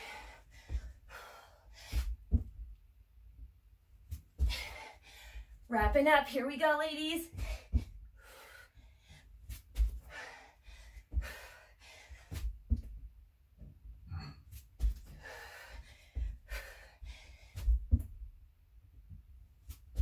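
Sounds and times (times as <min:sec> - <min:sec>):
woman breathing hard: 0:00.0 - 0:02.5, 0:04.4 - 0:05.6, 0:07.4 - 0:12.8, 0:14.9 - 0:18.1
low thuds on exercise mat: 0:01.8 - 0:02.7, 0:12.4 - 0:13.7, 0:17.6 - 0:18.4.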